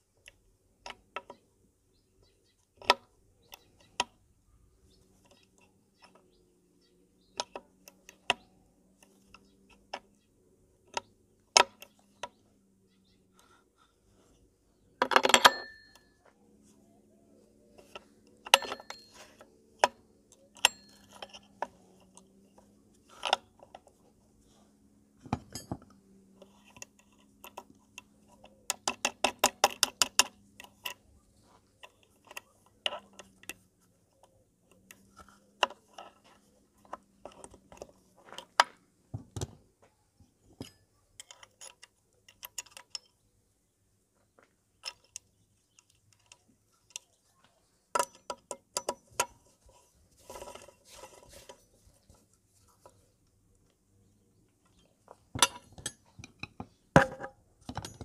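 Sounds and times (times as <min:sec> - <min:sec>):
metallic clicks of tools: 0:17.8 - 0:24.0, 0:25.4 - 0:31.1, 0:40.6 - 0:43.3, 0:47.9 - 0:49.5.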